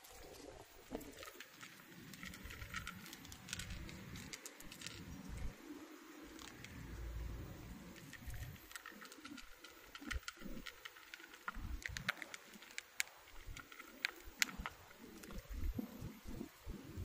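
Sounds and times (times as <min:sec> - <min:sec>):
cats crunching dry kibble: 0:00.0 - 0:17.0.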